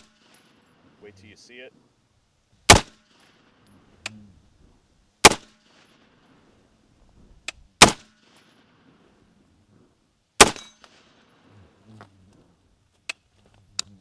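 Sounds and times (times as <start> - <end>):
rifle shots with echo: 2.7 - 3.6, 5.2 - 6.2, 7.8 - 8.8, 10.4 - 11.5.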